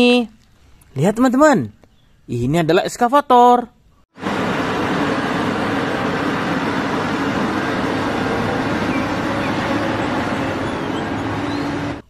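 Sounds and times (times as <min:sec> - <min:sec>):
excavator engine rumble: 0:04.2 - 0:12.0.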